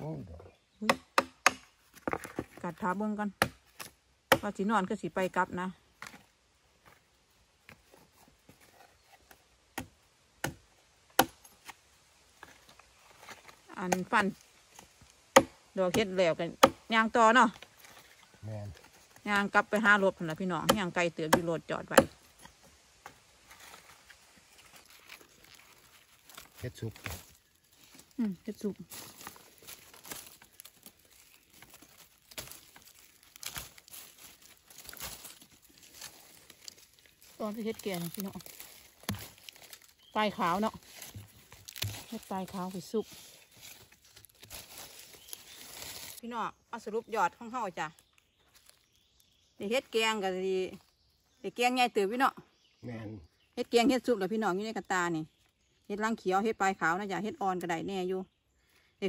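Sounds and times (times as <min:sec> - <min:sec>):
knife chopping onto wooden log: 0:00.8 - 0:02.5, 0:03.4 - 0:04.5, 0:09.8 - 0:10.6, 0:11.2 - 0:11.4, 0:15.3 - 0:16.8, 0:41.7 - 0:42.1
twigs snapping: 0:22.0 - 0:28.3, 0:28.9 - 0:46.2, 0:48.0 - 0:49.3
hands rustling in leaf litter: 0:23.2 - 0:46.2.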